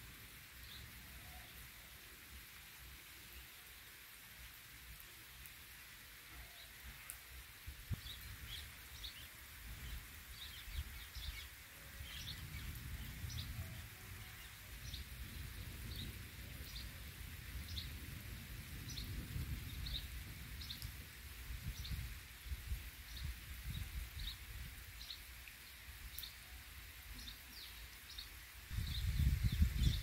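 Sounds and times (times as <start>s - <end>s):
light rain hiss: 0.0s - 30.0s.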